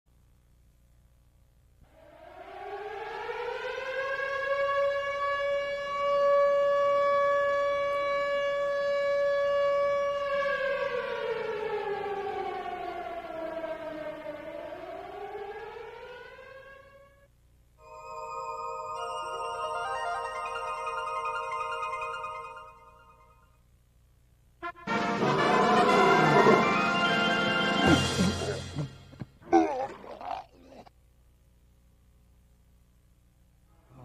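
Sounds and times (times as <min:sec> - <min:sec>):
air raid siren wailing: 0:01.9 - 0:23.4, 0:24.7 - 0:28.9.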